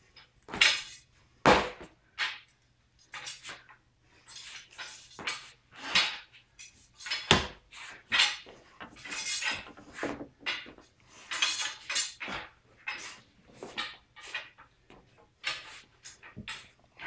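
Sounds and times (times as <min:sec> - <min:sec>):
metallic clinking and rattling: 0:08.1 - 0:09.8, 0:10.4 - 0:13.2.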